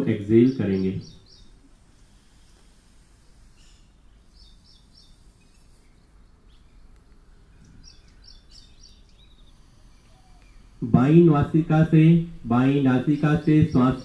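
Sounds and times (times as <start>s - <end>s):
faint bird chirps: 0.0s - 10.9s
low steady hum: 0.0s - 14.0s.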